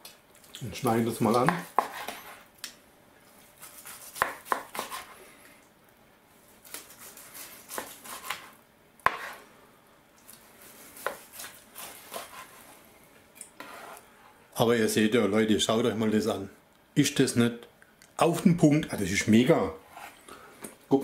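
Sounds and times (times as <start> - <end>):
knife cutting on plastic board: 1.3 - 2.4, 3.6 - 5.2, 6.7 - 9.4, 11.0 - 12.7.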